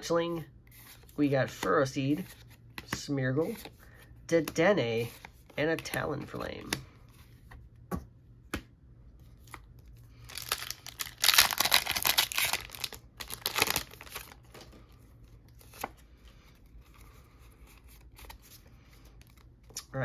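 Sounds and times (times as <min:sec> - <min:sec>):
foil pack tearing and crinkling: 0:10.3 - 0:14.6.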